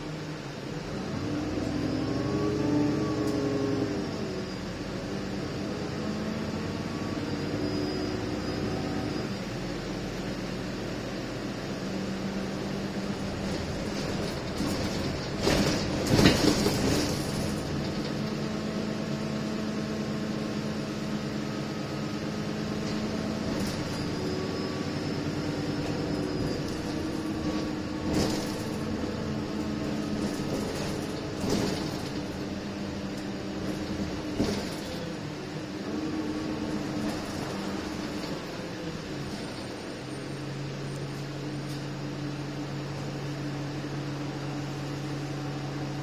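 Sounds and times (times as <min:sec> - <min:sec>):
bus engine humming: 0:00.0 - 0:46.0
rattles and knocks from bus body: 0:12.9 - 0:19.5, 0:22.7 - 0:24.4, 0:25.6 - 0:35.3, 0:36.4 - 0:39.7.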